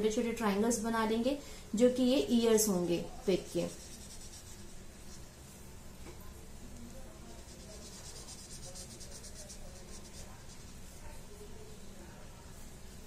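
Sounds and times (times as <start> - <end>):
crayon scratching on paper: 3.3 - 5.5, 7.1 - 11.5.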